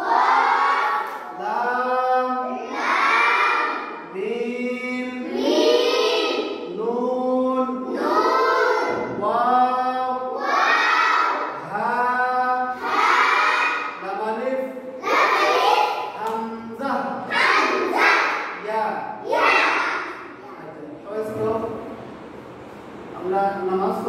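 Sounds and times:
children chanting in unison: 0.0 - 4.2, 5.0 - 6.8, 7.8 - 9.2, 9.9 - 11.9, 12.5 - 14.1, 15.0 - 16.5, 17.2 - 20.7.

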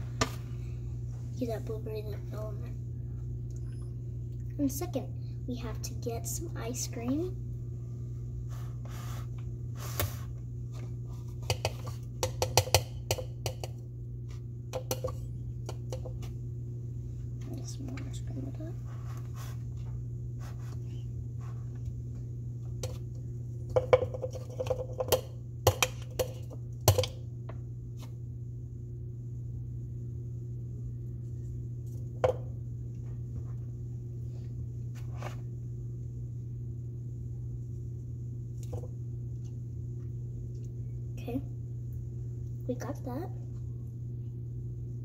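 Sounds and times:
steady low hum: 0.0 - 45.0
metal spoon knocking on plastic tub: 11.5 - 13.8.

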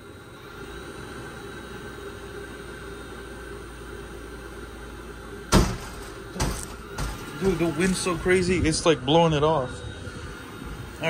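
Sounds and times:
blower fan whirring hum: 0.0 - 11.0.

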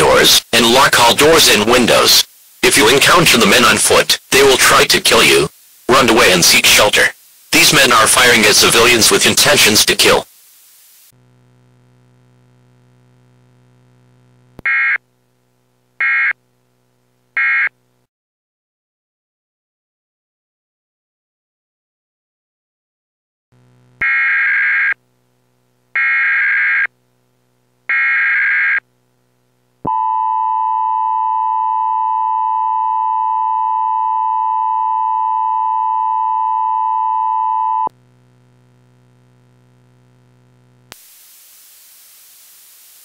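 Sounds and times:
harsh data bursts: 0.0 - 11.1
static hiss: 0.0 - 18.1, 37.9 - 43.0
low hum: 11.2 - 17.3, 28.9 - 40.9.

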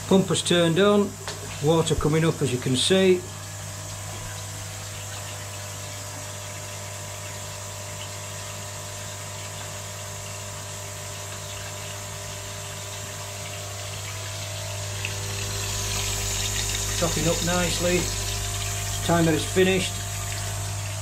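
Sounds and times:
pump humming: 0.0 - 21.0
water hissing: 11.4 - 21.0.

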